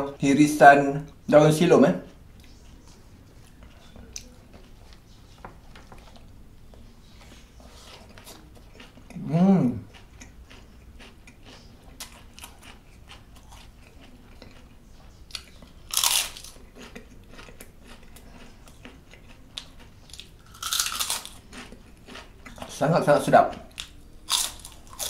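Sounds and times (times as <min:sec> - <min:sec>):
crunchy chewing bursts: 0:02.0 - 0:25.0
close chewing with wet mouth clicks: 0:07.8 - 0:09.2, 0:09.8 - 0:22.8.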